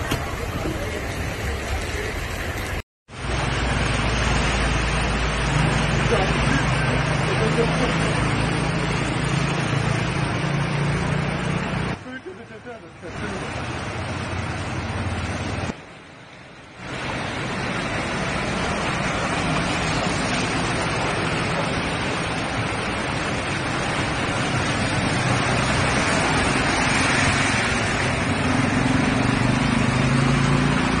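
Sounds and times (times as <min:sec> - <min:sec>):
motorcycles driving through water: 0:00.0 - 0:16.0, 0:16.8 - 0:31.0
heavy rain and floodwater rushing: 0:00.0 - 0:31.0
engine hum: 0:16.8 - 0:31.0.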